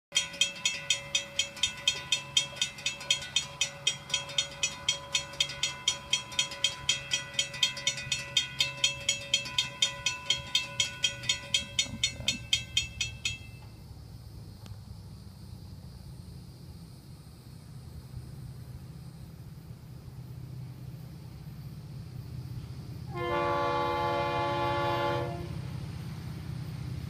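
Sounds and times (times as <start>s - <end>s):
railroad crossing bell ringing: 0.1s - 13.9s
low steady rumble: 0.2s - 27.0s.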